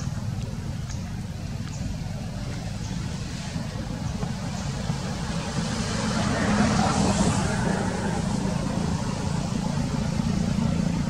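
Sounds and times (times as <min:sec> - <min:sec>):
vehicle engine running: 0:00.0 - 0:11.0.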